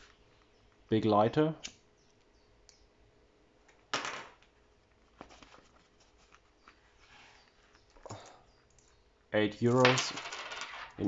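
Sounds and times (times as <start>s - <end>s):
soft rustle: 4.8s - 8.0s
faint clicks: 7.8s - 9.0s.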